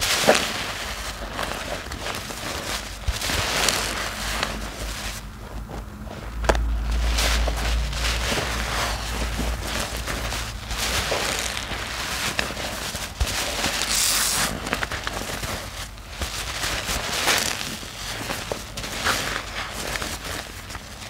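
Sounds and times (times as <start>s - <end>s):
wet sponge squelching: 6.6s - 21.0s.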